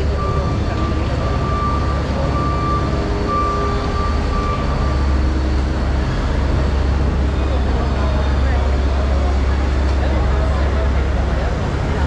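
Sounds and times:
low machinery drone: 0:00.0 - 0:12.0.

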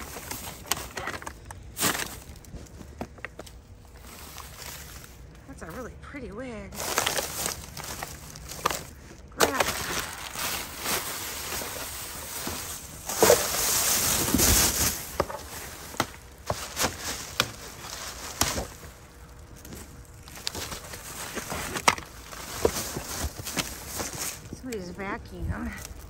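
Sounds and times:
items knocking and clunking: 0:00.0 - 0:03.6, 0:06.8 - 0:18.9, 0:19.6 - 0:24.6
plastic bags rustling: 0:00.0 - 0:05.9, 0:06.7 - 0:26.0.

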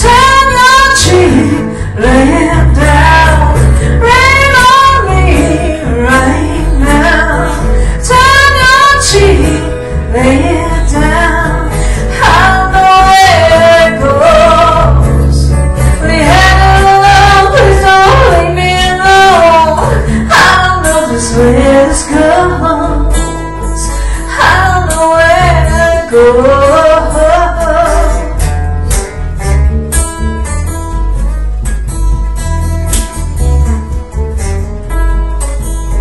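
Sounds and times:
woman singing into a microphone: 0:00.0 - 0:28.6
strummed acoustic guitar: 0:00.0 - 0:36.0.

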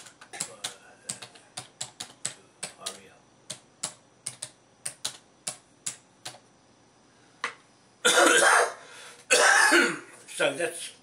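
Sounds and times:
computer keyboard key clicks: 0:00.0 - 0:06.4
person coughing: 0:08.0 - 0:10.2.

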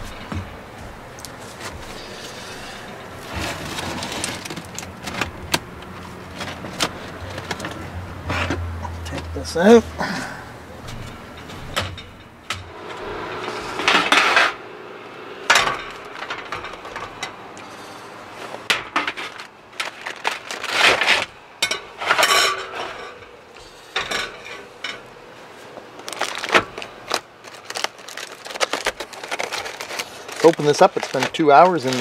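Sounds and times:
foil crinkling: 0:01.3 - 0:07.9, 0:19.2 - 0:21.4, 0:26.0 - 0:32.0
metal rack and tray clattering: 0:01.5 - 0:09.2, 0:10.8 - 0:14.7, 0:15.4 - 0:25.2.

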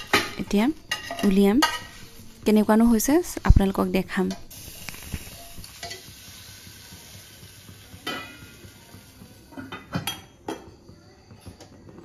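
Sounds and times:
faint sizzle: 0:00.0 - 0:12.0.

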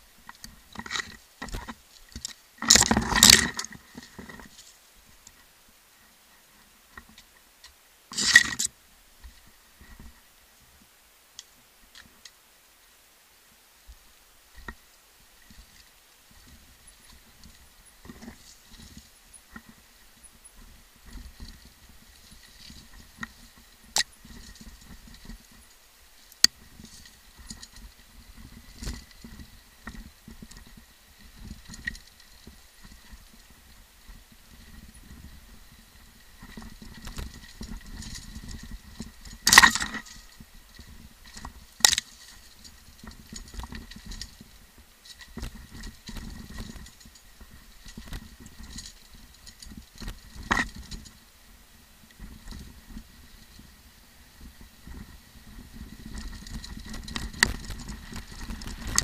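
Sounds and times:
mountain bike rattling downhill: 0:00.2 - 0:04.7, 0:14.4 - 0:59.0
tyres rumbling on rough ground: 0:52.2 - 0:59.0.

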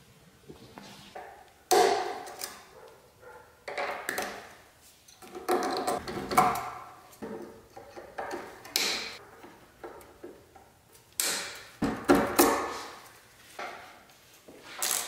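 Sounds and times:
tools scraping and clicking: 0:01.2 - 0:02.9.

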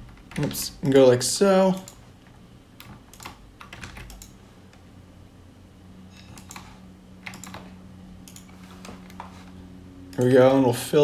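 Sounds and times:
low steady hum: 0:00.0 - 0:11.0
keyboard and mouse clicks: 0:01.7 - 0:04.4, 0:06.2 - 0:09.3.

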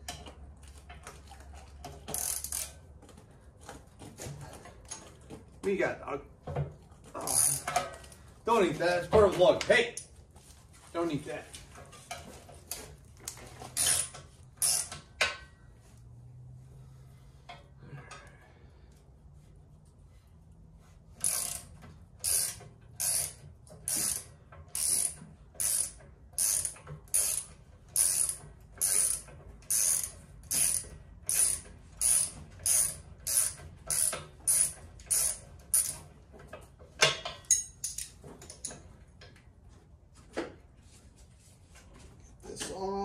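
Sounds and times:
socket ratchet clicking: 0:13.8 - 0:15.0, 0:21.2 - 0:36.0.

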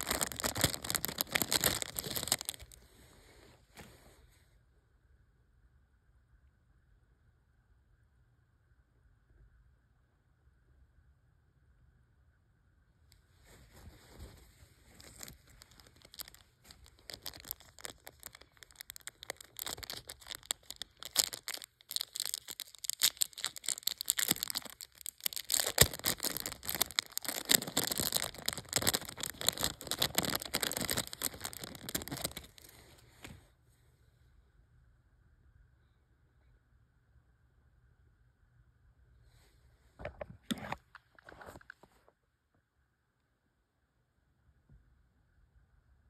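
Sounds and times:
plastic bag crinkling: 0:00.0 - 0:02.9, 0:13.7 - 0:33.2.

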